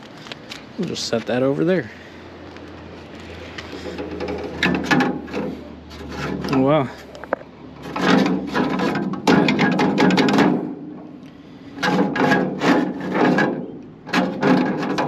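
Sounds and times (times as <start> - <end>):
metal scraping and rattling: 3.4 - 15.0.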